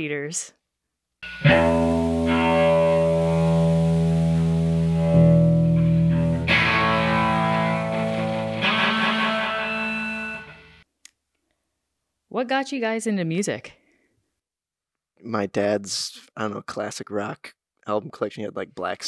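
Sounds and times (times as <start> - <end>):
distorted electric guitar chords: 1.2 - 10.8.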